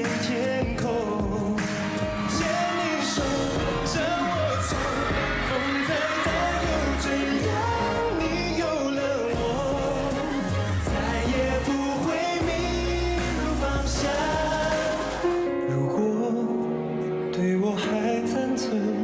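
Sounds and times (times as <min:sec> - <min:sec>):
person singing lead vocal: 0:00.0 - 0:19.0
pop song: 0:00.0 - 0:19.0
steady bass line: 0:00.6 - 0:15.5.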